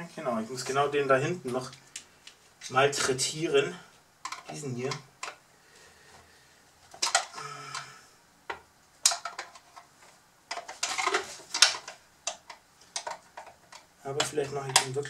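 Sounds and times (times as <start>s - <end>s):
plastic toy parts clicking: 4.2s - 5.4s, 6.9s - 7.9s, 8.5s - 9.8s, 10.5s - 15.0s.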